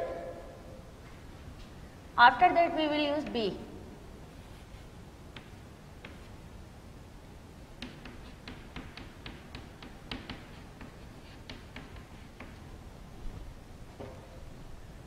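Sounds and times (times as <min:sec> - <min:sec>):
chalk tapping on chalkboard: 0:05.3 - 0:06.4, 0:07.8 - 0:12.7.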